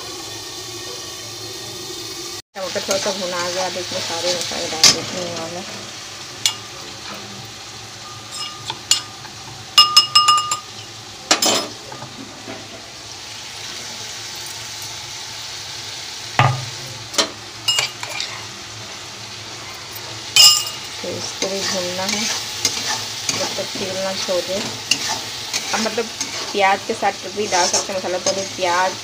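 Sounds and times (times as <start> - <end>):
frying sizzle in oil: 0.0 - 29.0
spoon clinking on steel: 8.0 - 9.1, 9.8 - 10.7, 17.7 - 18.3, 20.4 - 21.0.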